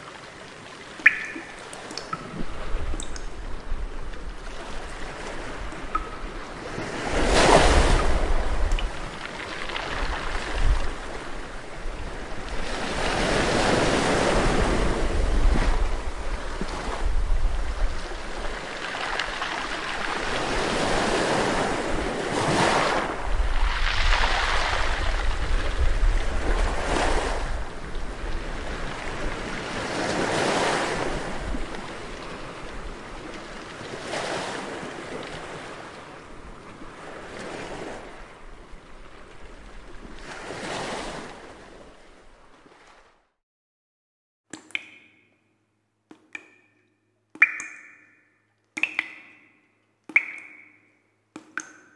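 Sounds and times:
sea waves breaking on shore: 0.0 - 43.3
wind rumbling on microphone: 1.0 - 18.7, 20.0 - 33.4.

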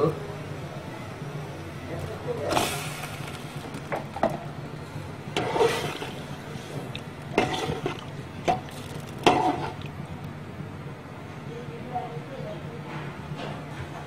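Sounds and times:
low steady hum: 0.0 - 12.7
ladle sloshing liquid in pot: 5.2 - 10.4.

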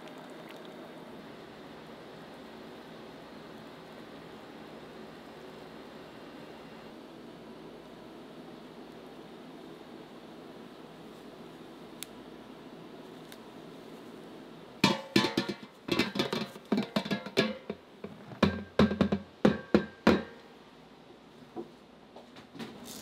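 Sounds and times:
steady low hum: 0.0 - 22.2
plastic container knocking on metal bowl: 14.8 - 20.4.

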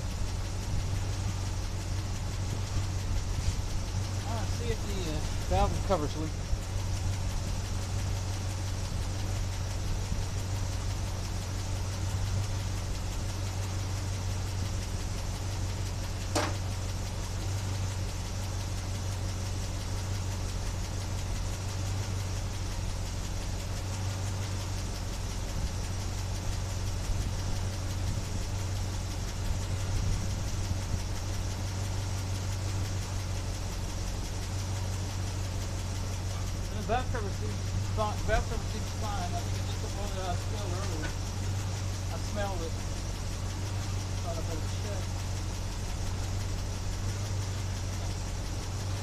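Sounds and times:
car engine idling: 0.0 - 49.0.

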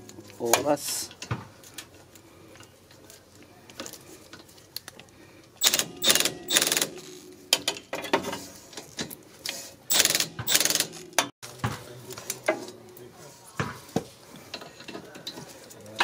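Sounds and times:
cordless ratchet running: 5.6 - 7.2, 9.9 - 11.0.

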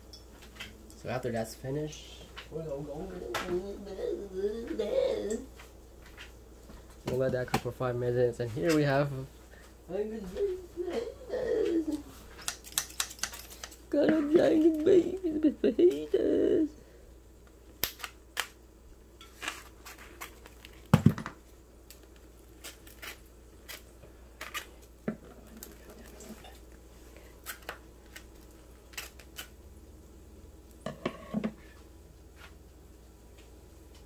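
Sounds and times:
scissors snipping: 12.4 - 13.8
plastic film crinkling and tearing: 19.4 - 20.9, 21.8 - 24.8, 27.4 - 29.6.

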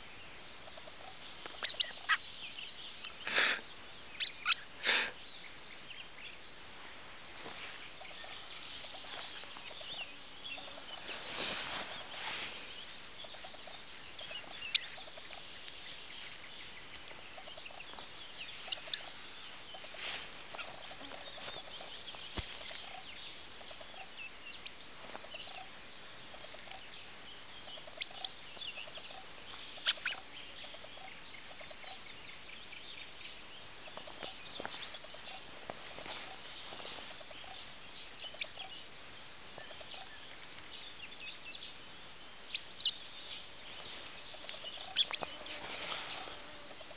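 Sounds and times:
background bird chatter: 0.0 - 46.9
fledgling bird high calls: 0.7 - 2.2, 4.2 - 5.1, 13.2 - 15.4, 18.6 - 21.9, 27.7 - 32.0, 38.3 - 38.7, 42.5 - 43.0, 44.3 - 46.9.

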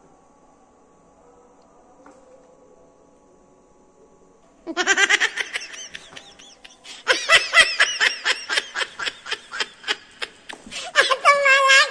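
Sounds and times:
person laughing heartily: 4.7 - 11.9.

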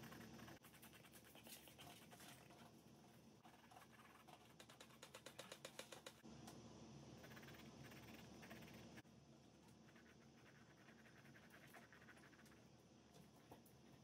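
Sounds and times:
paintbrush scratching on canvas: 0.0 - 6.2, 9.8 - 12.6.

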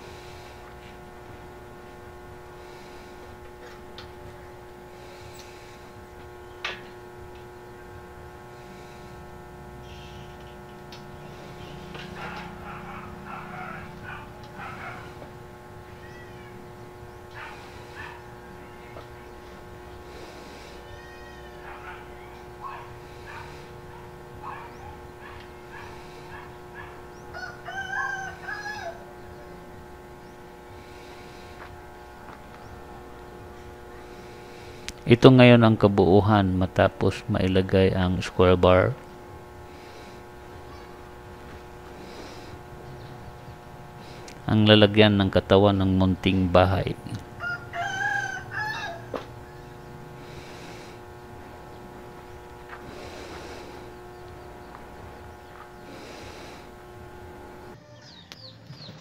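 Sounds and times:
steady electrical hum: 0.0 - 58.4
rooster crowing: 11.6 - 15.2, 20.8 - 23.5, 24.4 - 29.6, 47.3 - 49.3.

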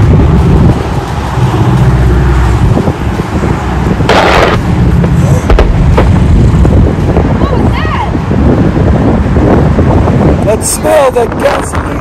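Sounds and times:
fire explosion rumble: 0.0 - 7.5
propeller aircraft engines droning: 0.0 - 12.0.

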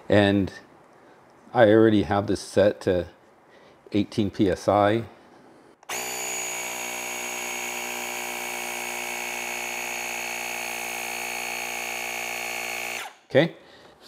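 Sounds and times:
electric air pump running: 5.8 - 13.2.

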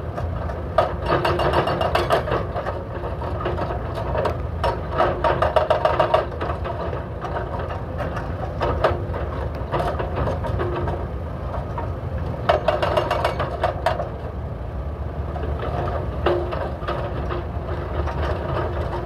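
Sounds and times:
diesel engines droning: 0.0 - 19.0
hydraulic breakers hammering asphalt: 0.7 - 11.0, 11.7 - 14.2.

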